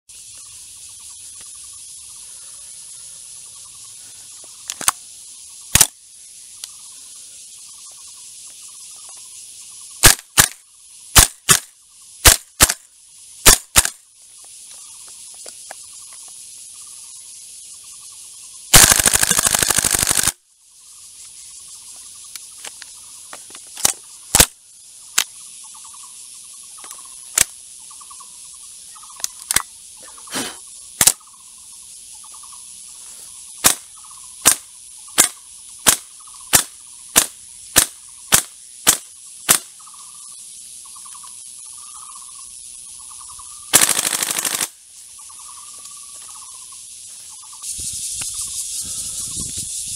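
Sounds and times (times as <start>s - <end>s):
insects chirping: 0.1s - 49.9s
airsoft rifle full-auto burst: 10.0s - 10.6s, 13.4s - 14.0s, 18.7s - 20.4s, 43.7s - 44.7s
airsoft rifle single shots: 10.0s - 10.6s, 11.2s - 12.8s, 13.4s - 14.0s, 18.7s - 20.3s, 33.6s - 33.8s, 35.2s - 39.7s.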